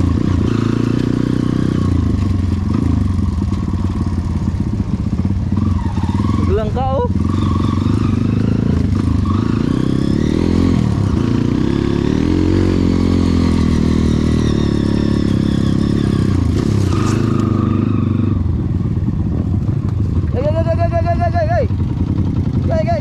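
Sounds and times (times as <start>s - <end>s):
dirt bike engine revving: 0.0s - 19.4s.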